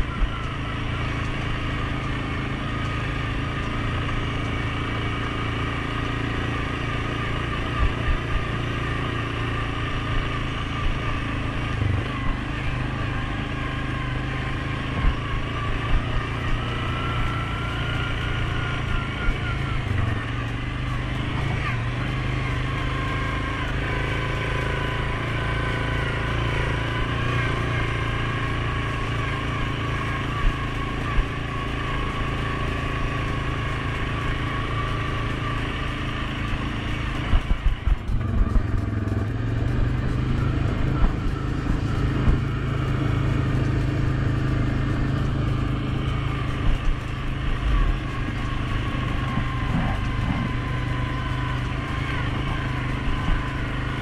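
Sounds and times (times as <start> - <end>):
atv engine running: 0.0 - 54.0.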